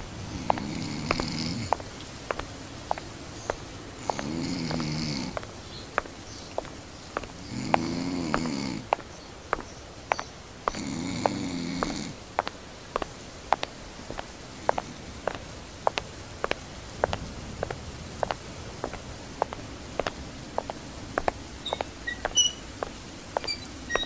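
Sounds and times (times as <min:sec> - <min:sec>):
person snoring: 0:00.2 - 0:01.8, 0:04.0 - 0:05.4, 0:07.4 - 0:08.9, 0:10.7 - 0:12.2.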